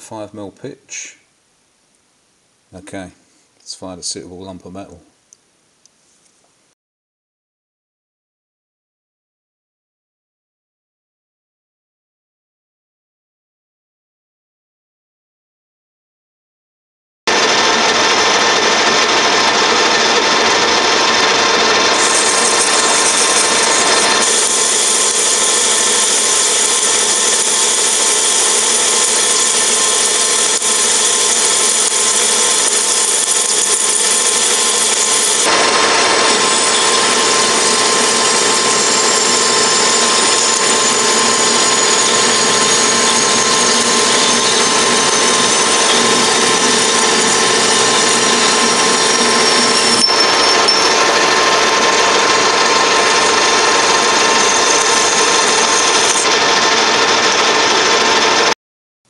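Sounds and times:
metal lathe cutting: 17.3 - 58.6.

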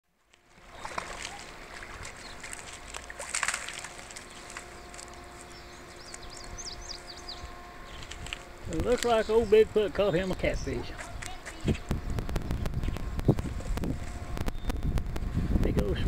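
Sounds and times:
steady mechanical hum: 0.1 - 16.0
bird chirping: 4.2 - 8.2, 14.5 - 15.0.

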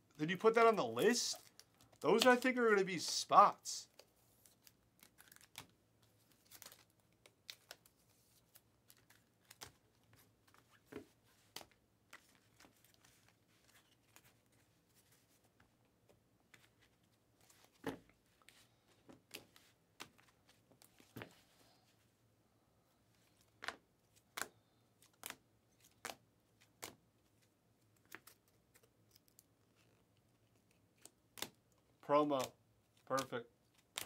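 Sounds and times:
cards and plastic packaging rustling: 0.2 - 15.5, 32.2 - 34.0.

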